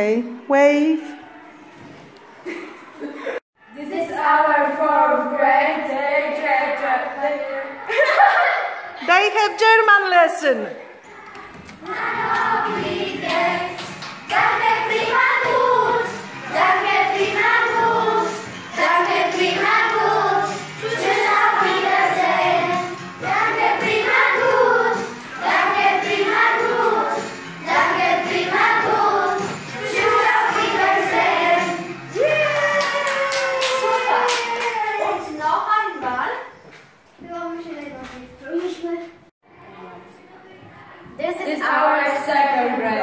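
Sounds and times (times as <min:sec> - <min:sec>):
children singing: 0:11.0 - 0:31.9.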